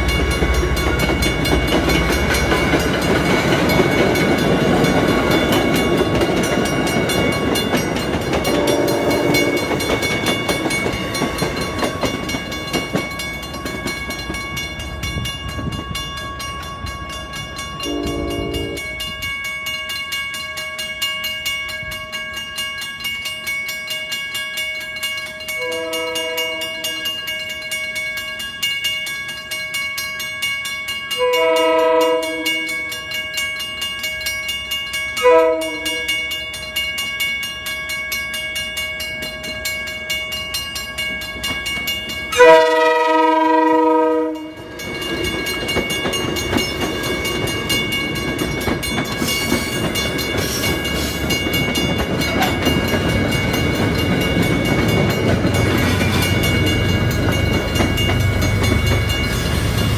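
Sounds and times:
train wheels rumbling: 0.0 - 22.4, 29.2 - 59.9
crossing bell ringing: 0.0 - 59.9
train horn blasts: 8.5 - 9.7, 17.8 - 19.0, 25.6 - 27.0, 31.2 - 32.9, 35.2 - 36.2, 42.3 - 44.7.

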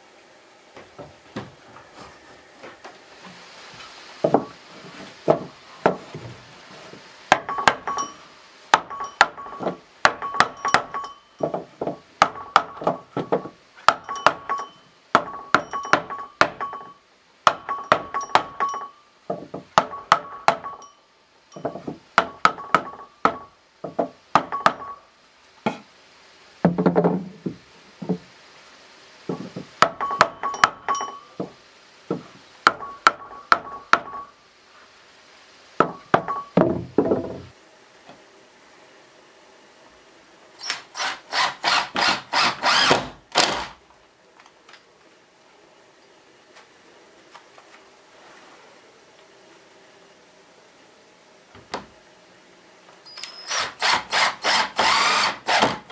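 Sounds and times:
hammer tapping nails: 8.7 - 14.6, 15.2 - 16.9, 17.5 - 20.8, 21.6 - 25.0, 29.3 - 31.5.

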